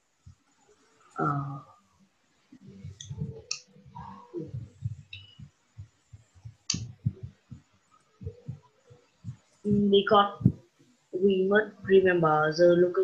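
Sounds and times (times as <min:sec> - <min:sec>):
soft low thumps: 0:02.6 - 0:12.2
clicks near microphone: 0:06.4 - 0:07.6.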